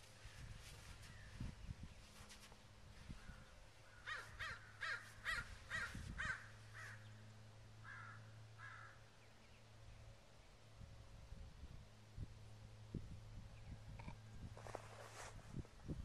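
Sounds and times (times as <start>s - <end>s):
crow cawing: 3.9s - 7.1s, 7.8s - 9.0s.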